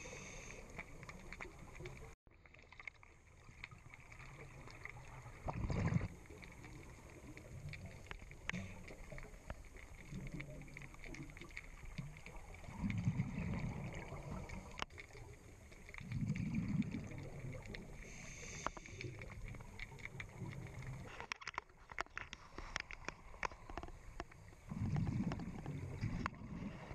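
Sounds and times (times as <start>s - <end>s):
faint clicks and crackles: 0.0s - 26.9s
diver exhaling bubbles underwater: 5.3s - 6.2s, 12.6s - 14.8s, 16.0s - 18.6s, 24.6s - 26.9s.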